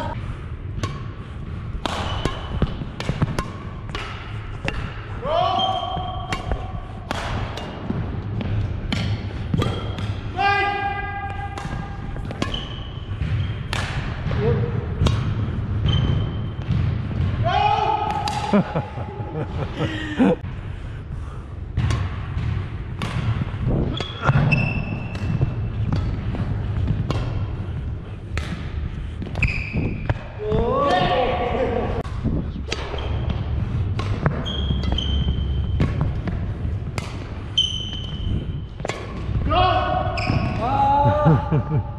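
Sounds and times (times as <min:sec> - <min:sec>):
racket striking shuttlecock: 0:00.7 - 0:05.1, 0:06.0 - 0:10.3, 0:11.3 - 0:14.3, 0:15.0 - 0:16.8, 0:21.8 - 0:27.5, 0:32.0 - 0:39.3
shoes squeaking on floor: 0:12.2 - 0:13.7, 0:15.8 - 0:16.7, 0:23.8 - 0:25.9, 0:29.3 - 0:30.2, 0:34.2 - 0:36.2, 0:37.5 - 0:38.9, 0:40.1 - 0:40.6.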